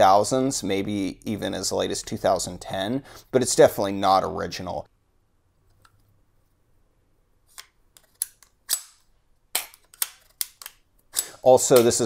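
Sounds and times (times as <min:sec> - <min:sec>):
metal pistol parts clicking: 0:07.6 - 0:12.0.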